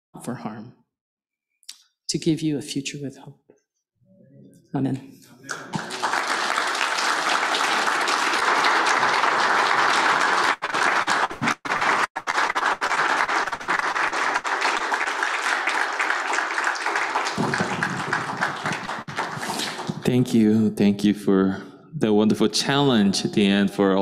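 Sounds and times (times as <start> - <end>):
audience applauding: 5.5 - 20.3.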